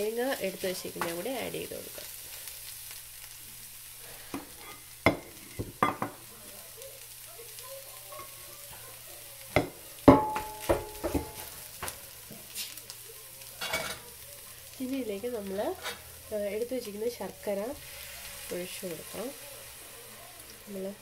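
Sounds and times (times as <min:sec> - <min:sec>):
faint sizzle: 0:00.0 - 0:21.0
wooden spatula scraping frying pan: 0:15.7 - 0:16.1.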